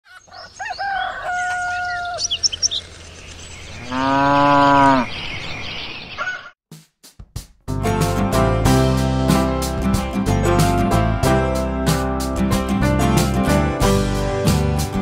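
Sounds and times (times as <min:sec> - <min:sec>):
farmyard background: 0:00.0 - 0:06.6
rooster crowing: 0:00.1 - 0:02.4
cow mooing: 0:03.8 - 0:05.2.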